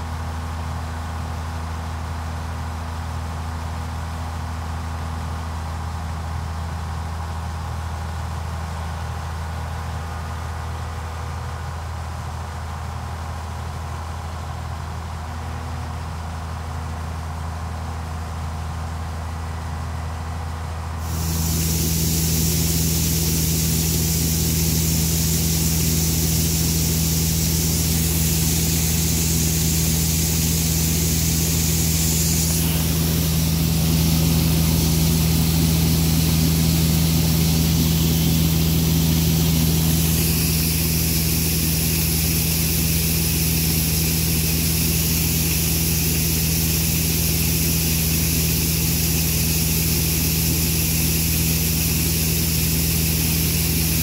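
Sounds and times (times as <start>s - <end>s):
combine harvester engine drone: 0.0s - 54.0s
high hiss: 21.0s - 54.0s.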